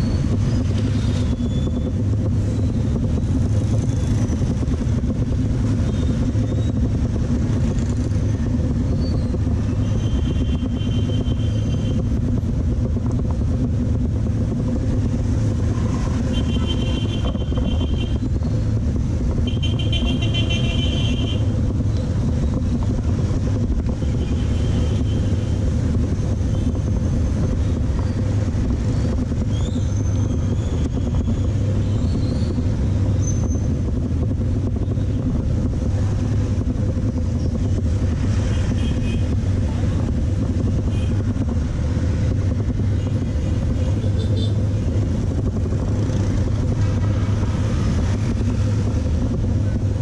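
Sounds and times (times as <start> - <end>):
motorbike engines and road noise: 0.0 - 50.0
horns beeping: 19.4 - 21.5.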